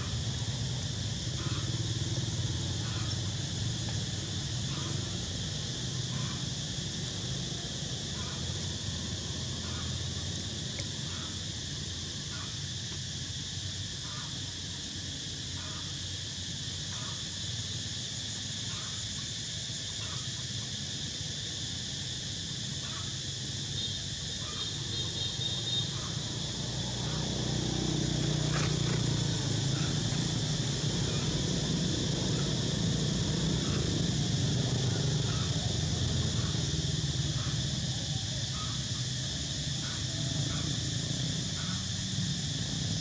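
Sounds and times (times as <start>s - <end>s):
high-pitched insect drone: 0.0s - 43.0s.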